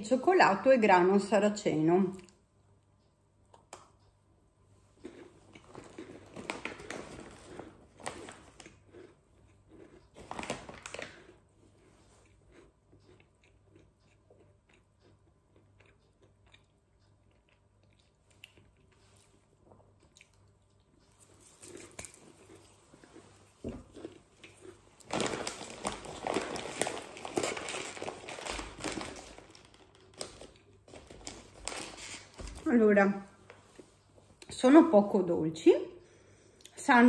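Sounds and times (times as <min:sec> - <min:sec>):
chewing: 0:04.9 - 0:29.2
biscuit crunching: 0:05.0 - 0:32.7.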